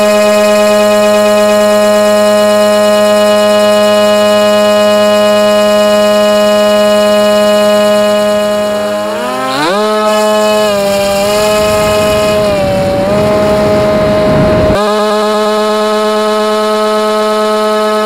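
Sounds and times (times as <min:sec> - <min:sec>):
electric motor and propeller whine: 0:00.0 - 0:18.0
rushing wind noise: 0:09.5 - 0:14.9.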